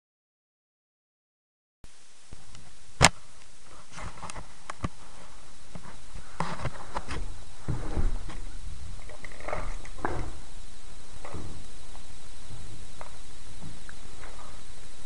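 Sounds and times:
loud sharp crack: 3.0s - 3.2s.

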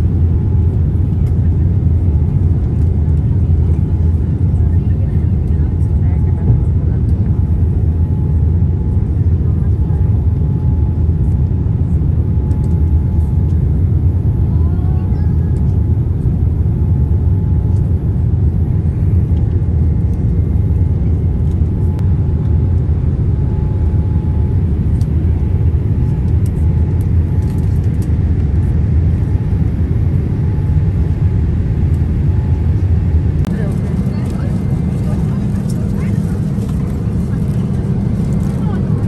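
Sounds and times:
airliner cabin rumble: 0.0s - 39.0s.

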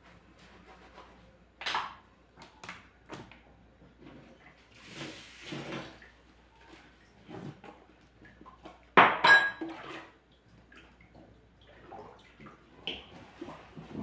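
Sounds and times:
dishes clinking in a sink: 8.6s - 10.1s
loud ringing clatter of dishes: 9.0s - 9.6s.

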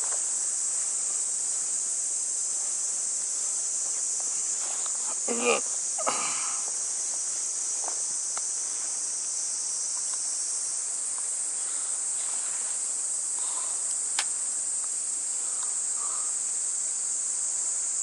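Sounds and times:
high-pitched insect chorus: 0.0s - 18.0s
faint ticks: 7.8s - 8.6s, 9.9s - 10.3s, 11.1s - 11.3s, 13.4s - 16.1s.

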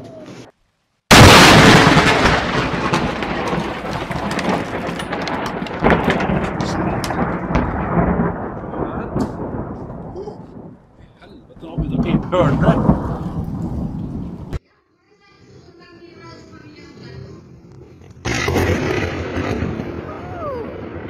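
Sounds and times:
rain: 1.1s - 14.6s, 18.9s - 21.0s
sharp thunder cracks: 1.1s - 14.6s, 18.2s - 21.0s
thunder rumbling: 1.1s - 14.6s, 18.3s - 21.0s.

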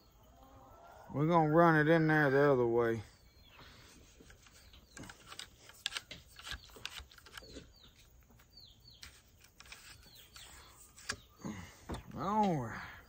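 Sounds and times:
small birds chirping: 0.0s - 13.0s
rod scraping inside rifle barrel: 9.0s - 11.3s.

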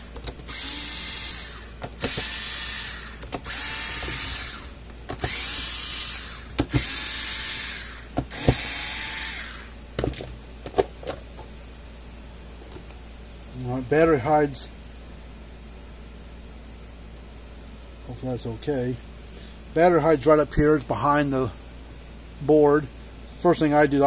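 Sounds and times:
electric screwdriver whining: 0.4s - 9.7s.

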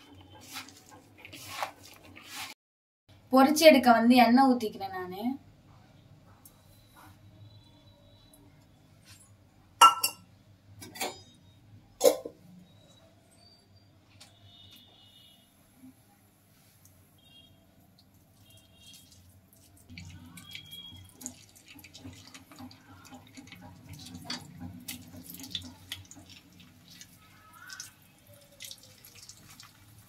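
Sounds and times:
batter deep-frying in oil: 16.5s - 30.0s.

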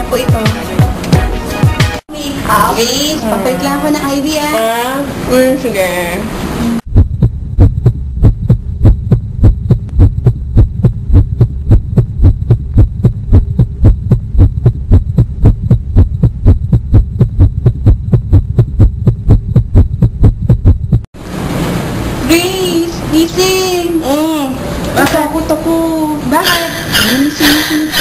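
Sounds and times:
steady low hum: 2.1s - 28.0s
rapid low thuds: 6.8s - 21.1s.

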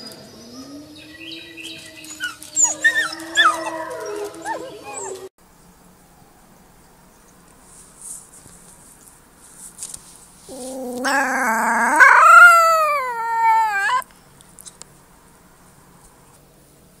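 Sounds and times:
wolf pup howling: 0.3s - 5.3s, 10.5s - 14.0s.

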